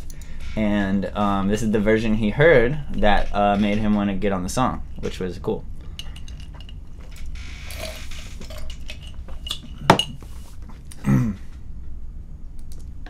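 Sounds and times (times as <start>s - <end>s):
objects clicking and clinking: 6.0s - 10.2s.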